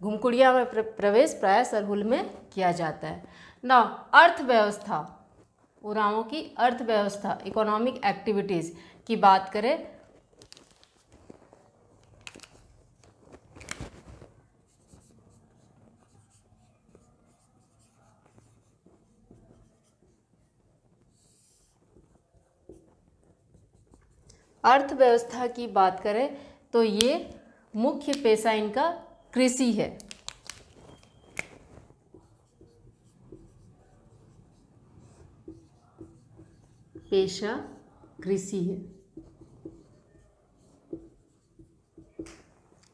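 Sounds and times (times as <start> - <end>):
marker writing on whiteboard: 9.4 - 26.2, 30.2 - 42.9.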